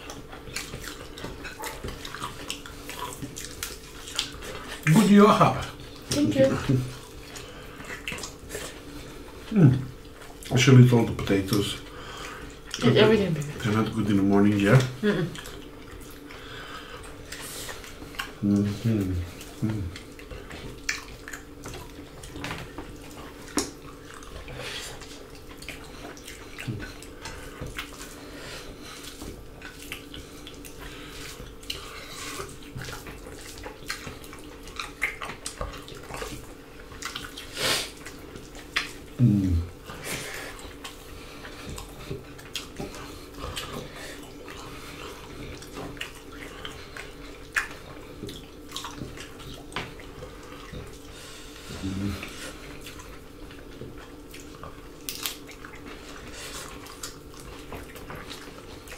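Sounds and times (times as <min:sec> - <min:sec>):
faint steady hum: 0:00.0 - 0:58.9
wet chewing and lip smacking: 0:00.0 - 0:58.9
person humming: 0:18.4 - 0:19.9, 0:39.2 - 0:39.7, 0:51.7 - 0:52.4.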